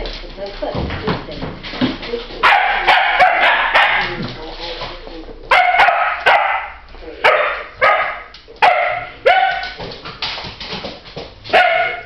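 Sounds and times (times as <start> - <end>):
dogs barking: 2.4 - 4.2, 5.5 - 9.8, 11.5 - 12.0.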